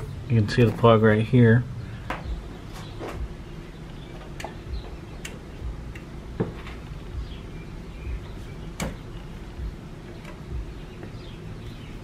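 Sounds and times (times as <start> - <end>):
soft low bumps: 0.0 - 12.0.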